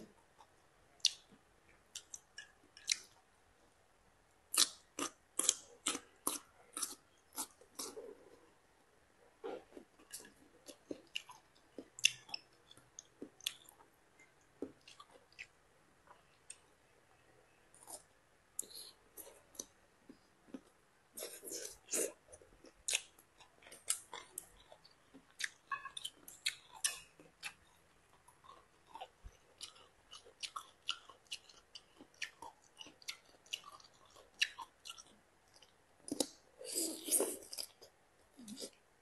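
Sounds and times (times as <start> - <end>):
crunchy chewing: 20.5 - 38.8.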